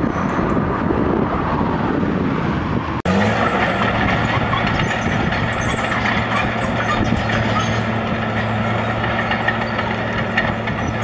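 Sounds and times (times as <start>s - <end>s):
bulldozer and truck engines droning: 0.0s - 11.0s
rushing machine noise: 3.1s - 11.0s.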